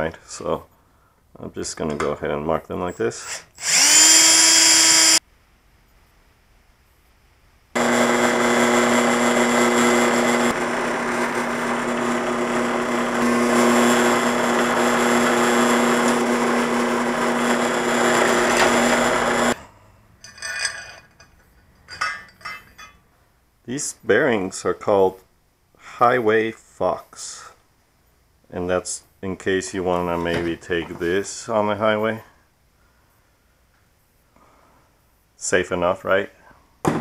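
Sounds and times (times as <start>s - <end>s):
drill press cutting steel: 3.2s - 5.2s, 7.8s - 19.6s
cordless drill running: 3.3s - 5.2s, 7.8s - 19.6s.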